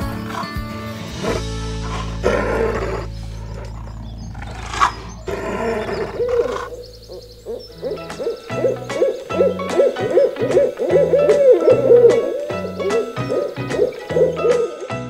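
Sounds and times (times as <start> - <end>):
owl hooting: 1.3 - 14.9.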